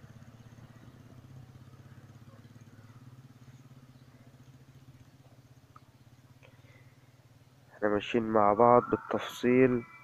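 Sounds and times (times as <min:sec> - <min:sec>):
low hum with fast flutter: 0:00.0 - 0:10.0.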